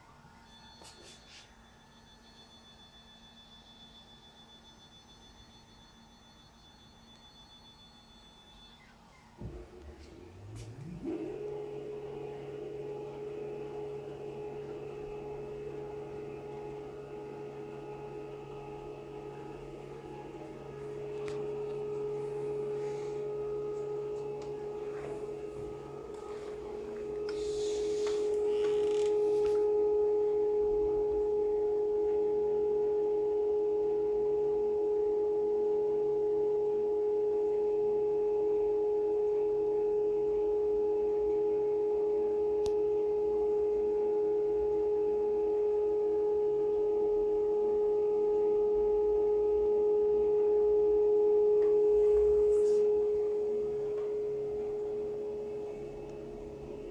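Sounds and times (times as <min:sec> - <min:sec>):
stepper motor high-pitched tone: 0:13.0 - 0:30.0.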